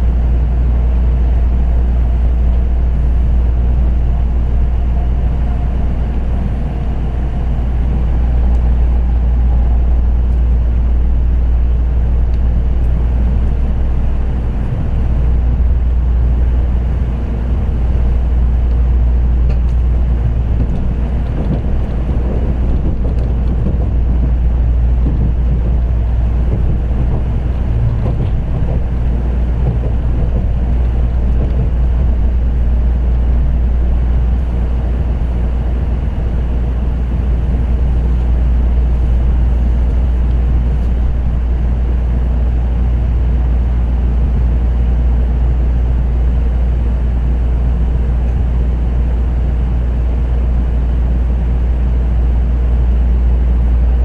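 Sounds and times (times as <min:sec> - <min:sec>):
train interior hum and rumble: 0:00.0 - 0:54.0
wheels rolling on rails: 0:02.0 - 0:42.5.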